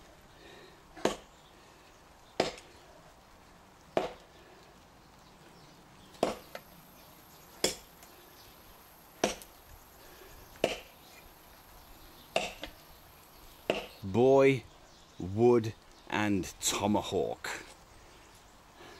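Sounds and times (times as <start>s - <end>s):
tomahawk chopping log: 1.0s - 1.3s, 2.4s - 2.7s, 4.0s - 4.2s, 6.2s - 6.6s, 7.6s - 7.9s, 9.2s - 9.5s, 10.6s - 10.9s, 13.7s - 14.0s.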